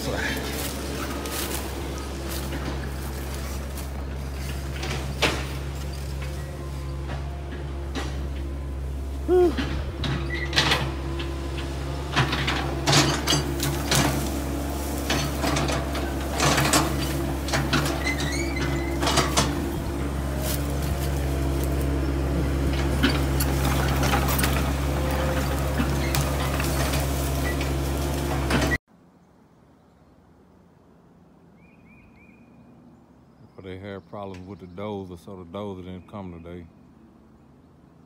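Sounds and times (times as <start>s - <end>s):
diesel engine running: 0.0s - 28.8s.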